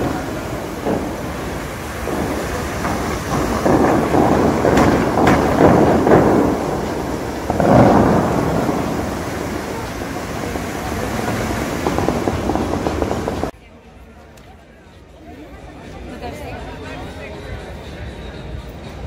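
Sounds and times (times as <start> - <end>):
sharp cracks: 0.0 - 13.5
water spray crashing down: 0.0 - 13.5.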